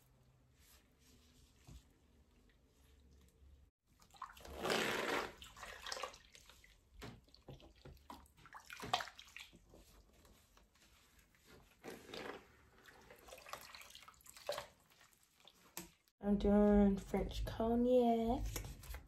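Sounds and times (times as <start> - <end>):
water splashing in a plastic bin: 3.9 - 10.2, 11.7 - 16.1.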